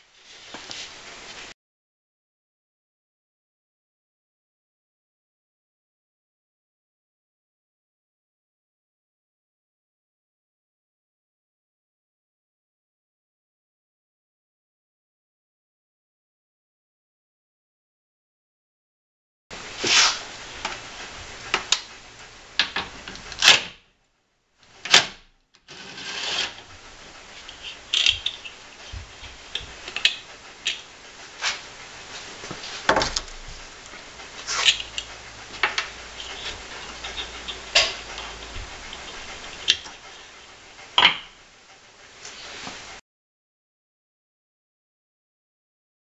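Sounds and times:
steady hiss: 0:00.0 - 0:01.5, 0:19.5 - 0:23.5, 0:25.7 - 0:43.0.

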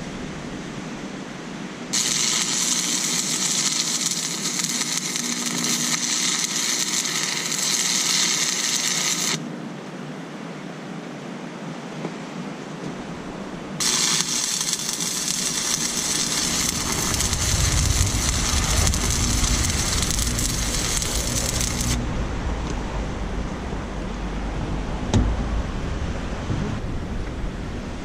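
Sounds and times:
welding arc crackling: 0:01.9 - 0:09.4, 0:13.8 - 0:22.1.

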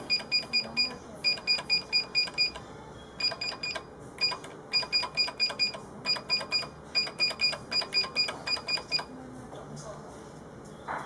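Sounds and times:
keypad beeps: 0:00.0 - 0:02.6, 0:03.2 - 0:09.1.

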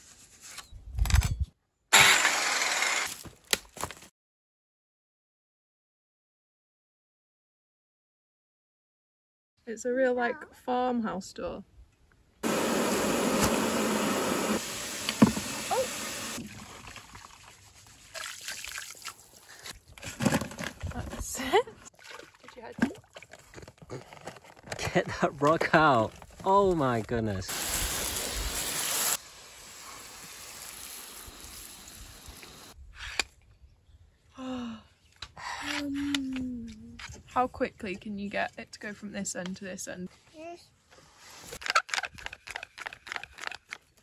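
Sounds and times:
hose water running onto rocks: 0:12.4 - 0:19.6, 0:27.5 - 0:32.8
water splashing in plastic tub: 0:16.4 - 0:19.4, 0:21.8 - 0:23.5.

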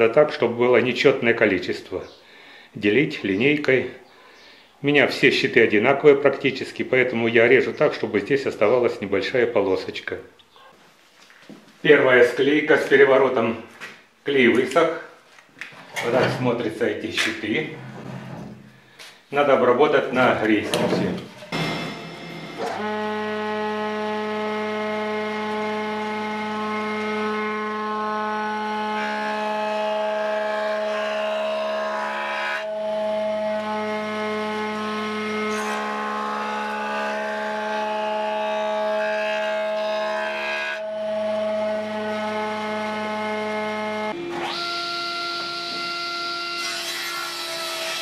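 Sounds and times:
thickness planer whine: 0:19.6 - 0:48.0.

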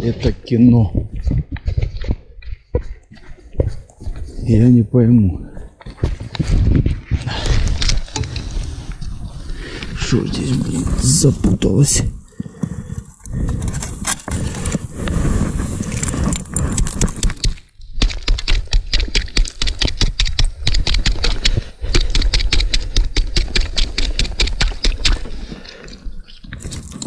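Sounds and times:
scraping and crunching on snowy ice: 0:06.4 - 0:11.6, 0:13.5 - 0:19.7, 0:24.0 - 0:27.0
sharp scrapes and clicks: 0:07.5 - 0:11.3, 0:12.4 - 0:27.0.

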